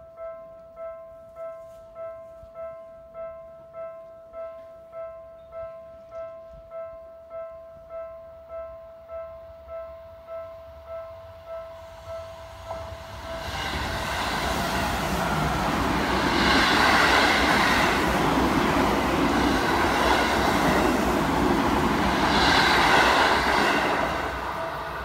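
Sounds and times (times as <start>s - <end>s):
train running noise: 11.8s - 25.0s.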